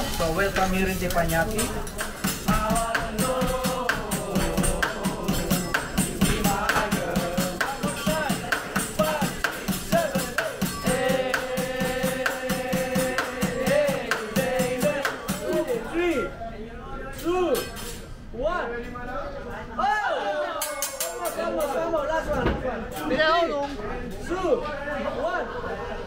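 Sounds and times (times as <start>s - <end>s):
music with rattling beat: 0.0s - 16.0s.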